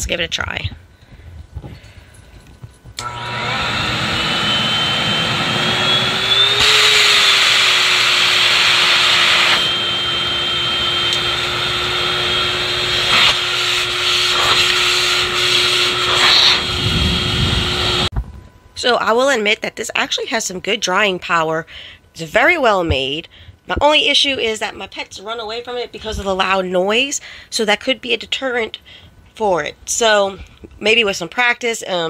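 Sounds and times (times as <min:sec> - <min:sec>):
dog dryer blower whining: 0:03.0 - 0:18.1.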